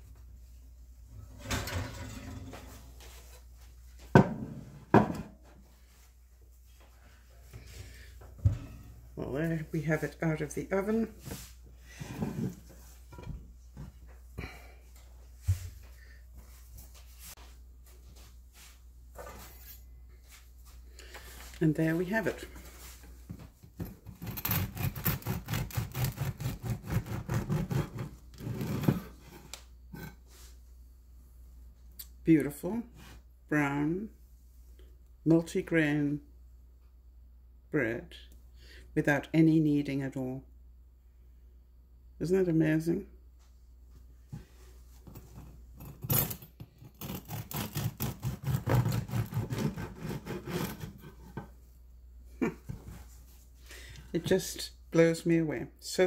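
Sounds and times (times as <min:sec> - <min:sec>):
knife scraping board: 0:23.8 - 0:30.2, 0:45.3 - 0:51.5
bread knife sawing through crust: 0:24.0 - 0:29.2, 0:46.9 - 0:51.3.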